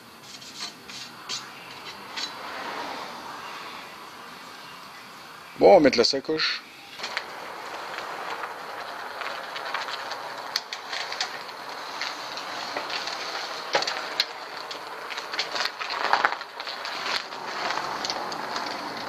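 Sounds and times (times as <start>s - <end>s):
bike tyres rolling on concrete: 0.0s - 19.0s
bike clicks and rattles: 0.3s - 2.6s, 7.0s - 19.0s.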